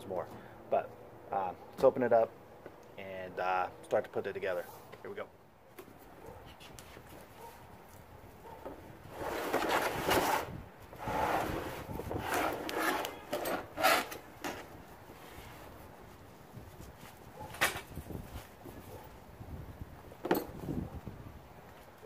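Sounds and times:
cardboard scraping and rubbing: 0:09.1 - 0:15.7.

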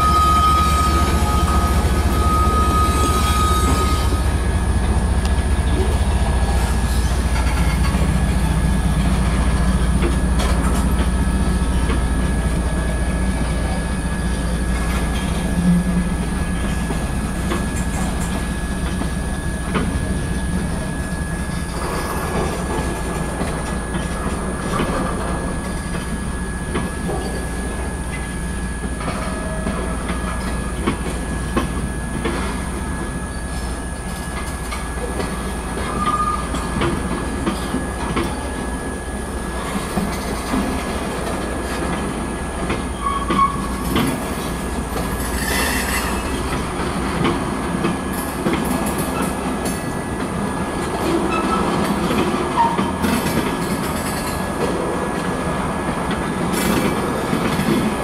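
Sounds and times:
wheel squeal: 0:00.0 - 0:04.4, 0:42.9 - 0:44.0, 0:45.2 - 0:46.5
diesel locomotive rumble: 0:00.0 - 0:58.0.

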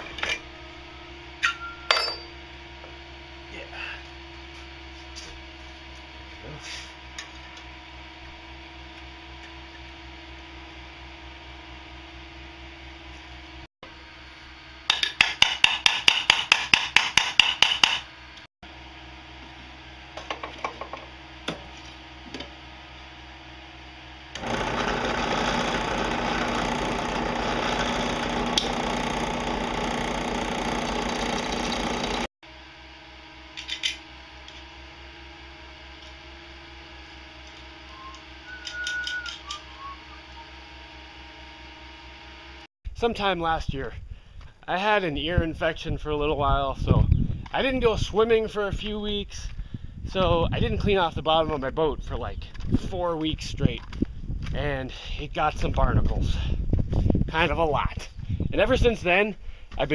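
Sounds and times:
drill press humming: 0:23.7 - 0:32.3
drilling into steel plate: 0:24.3 - 0:32.3.

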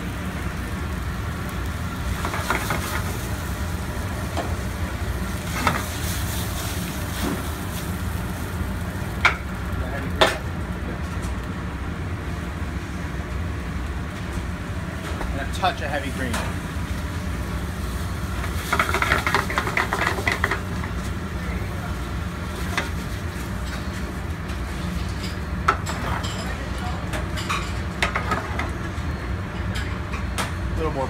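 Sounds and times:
pasta sizzling in a pan: 0:00.0 - 0:10.5, 0:16.6 - 0:26.2.

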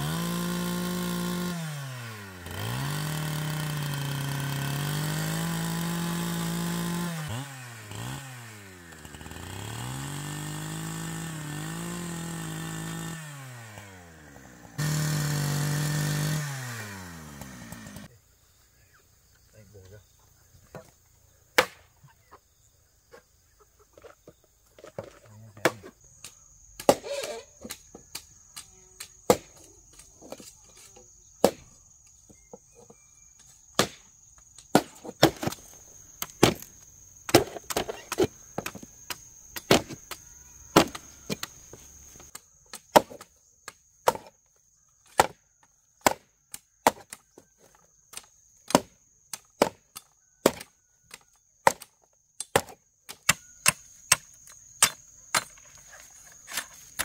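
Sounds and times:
hatchet chopping bamboo: 0:00.0 - 0:18.1, 0:21.6 - 0:21.9, 0:24.8 - 0:57.0
high insect drone: 0:13.2 - 0:51.4, 0:53.1 - 0:57.0.

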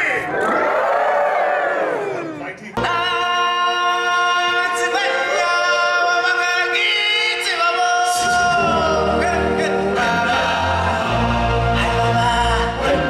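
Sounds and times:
choir singing long held notes: 0:08.0 - 0:13.0.

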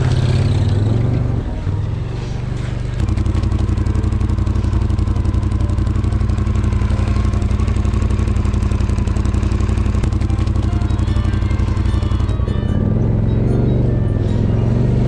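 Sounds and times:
snowmobile engine running: 0:03.0 - 0:15.0.

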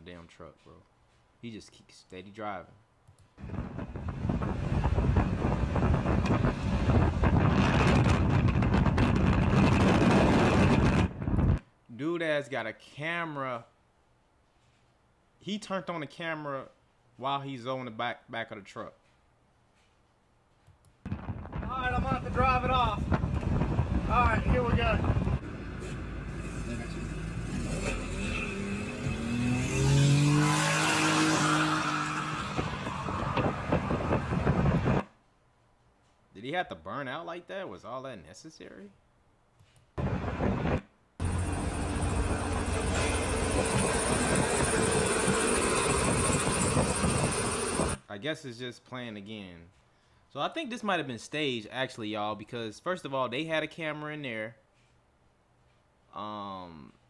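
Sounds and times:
wind buffeting microphone: 0:03.4 - 0:11.6, 0:21.1 - 0:25.5, 0:32.4 - 0:35.0, 0:40.0 - 0:48.0
vehicle rumble: 0:22.1 - 0:35.0, 0:40.0 - 0:48.0
car engine revving: 0:25.4 - 0:34.4, 0:41.2 - 0:48.0.

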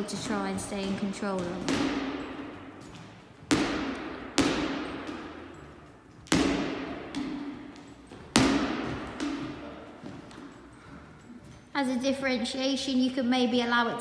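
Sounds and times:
volleyball slaps with hall echo: 0:00.0 - 0:10.5.

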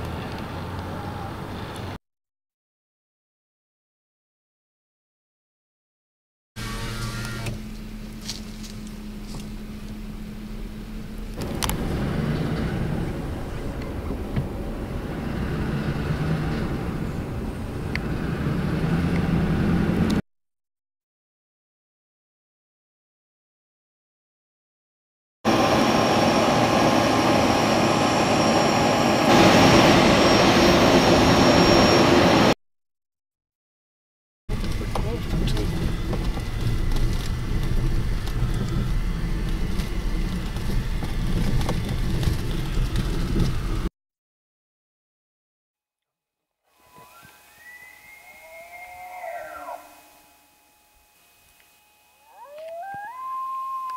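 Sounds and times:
vehicle engine rumbling: 0:00.0 - 0:02.0, 0:06.6 - 0:20.2, 0:34.5 - 0:43.9.

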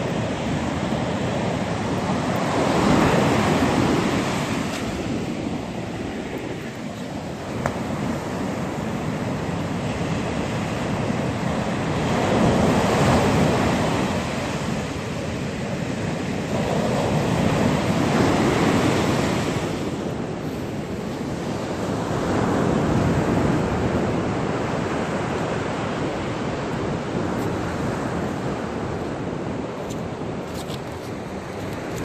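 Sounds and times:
surf breaking on sandy beach: 0:00.0 - 0:25.2.

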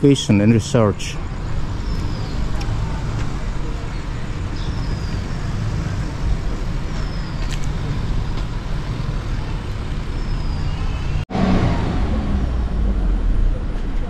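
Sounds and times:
low outdoor rumble: 0:10.9 - 0:14.0.

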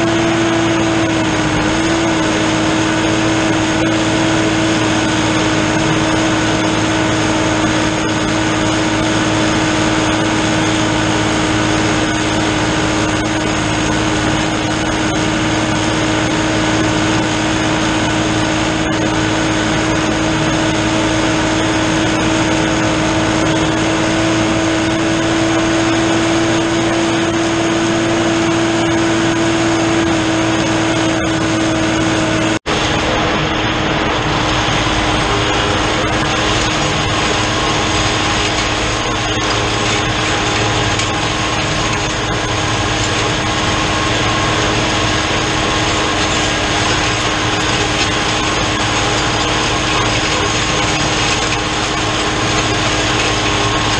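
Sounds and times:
tractor diesel engine droning: 0:00.0 - 0:53.9.

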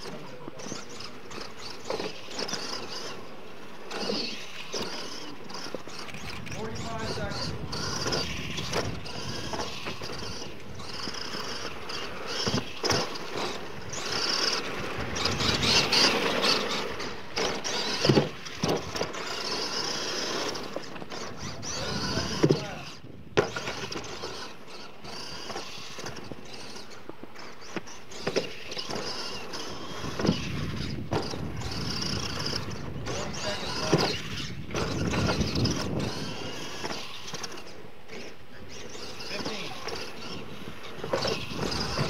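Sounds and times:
toy truck motor whining: 0:00.0 - 0:42.0
tyres scrabbling in loose dirt: 0:00.0 - 0:42.0.

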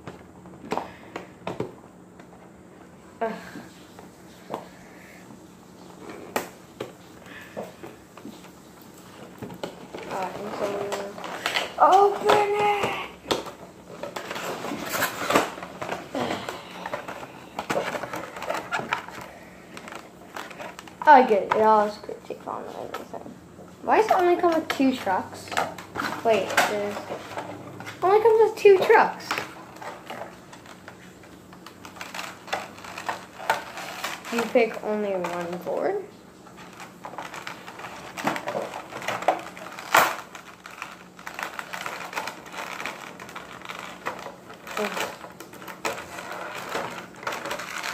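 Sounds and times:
packaging crinkling and rustling: 0:05.7 - 0:47.9
plastic clicks and crackles: 0:06.0 - 0:21.9, 0:24.0 - 0:47.9
sharp packaging crack: 0:36.6 - 0:47.9.

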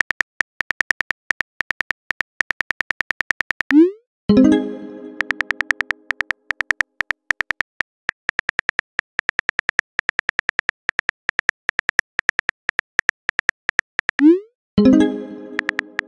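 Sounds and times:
phone keyboard typing clicks: 0:00.0 - 0:03.8, 0:05.1 - 0:14.3, 0:15.5 - 0:16.0
chime: 0:04.3 - 0:05.6, 0:14.8 - 0:16.0.

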